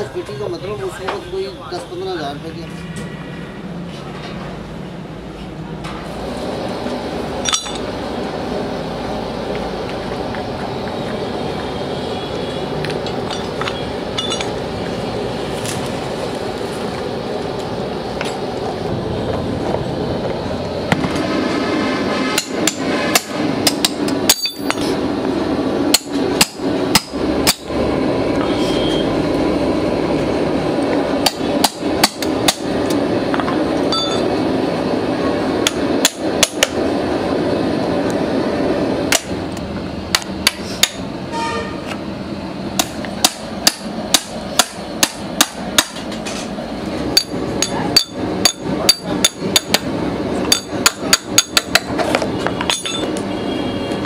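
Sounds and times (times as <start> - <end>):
hammer striking steel chisel: 22.4 - 24.9, 47.2 - 49.9, 50.5 - 51.9.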